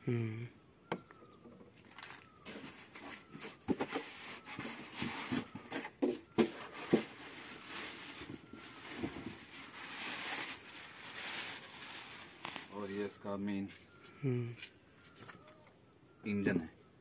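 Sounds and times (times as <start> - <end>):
plastic bag rustling: 1.8 - 5.8, 6.4 - 13.2.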